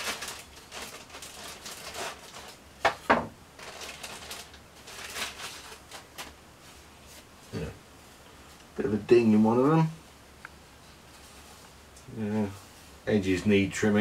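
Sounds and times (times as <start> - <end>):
plastic bag crinkling: 0.0 - 6.4.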